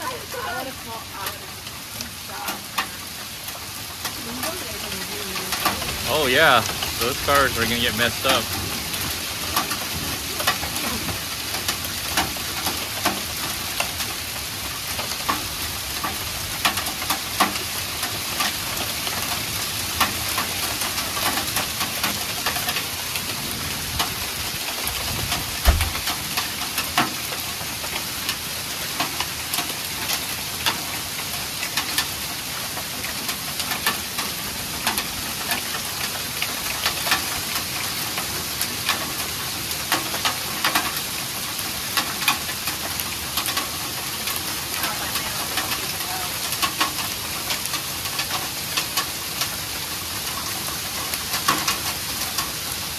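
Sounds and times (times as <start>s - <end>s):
hailstones clicking: 0.0s - 52.9s
rain hiss: 0.0s - 52.9s
low thump: 25.6s - 26.0s.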